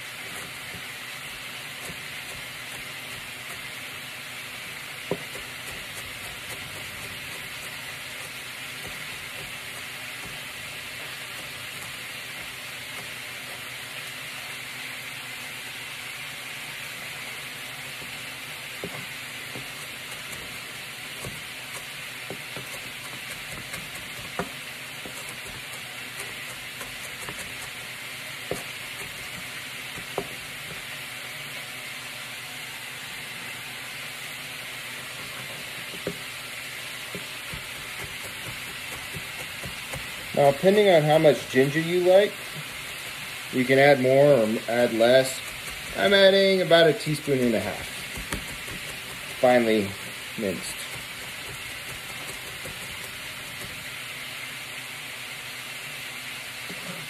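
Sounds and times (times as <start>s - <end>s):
meat sizzling in a hot pan: 0.0s - 57.0s
knife chopping on plastic board: 1.7s - 3.8s, 5.0s - 13.2s, 18.8s - 30.9s, 35.2s - 36.2s, 37.0s - 40.4s, 45.3s - 46.2s, 47.0s - 53.9s.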